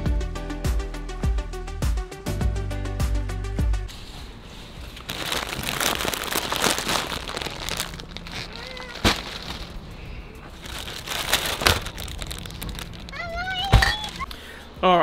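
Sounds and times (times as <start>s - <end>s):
plastic bags rustling: 4.3s - 14.4s.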